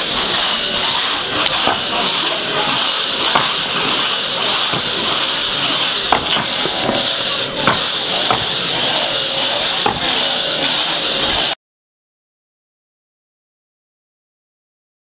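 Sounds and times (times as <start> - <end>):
hand saw rasping through log: 0.0 - 11.6
sharp knocks: 6.1 - 8.6.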